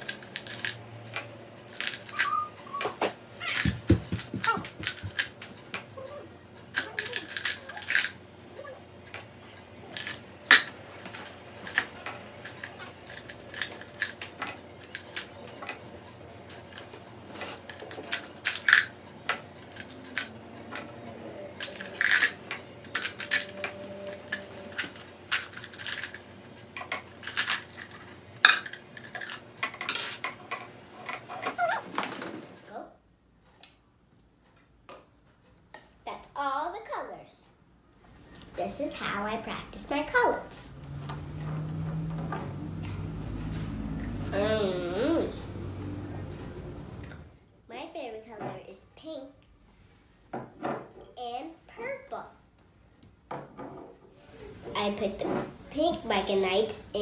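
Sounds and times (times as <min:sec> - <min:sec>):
candies clattering against glass: 0:06.7 - 0:08.2, 0:21.6 - 0:31.8.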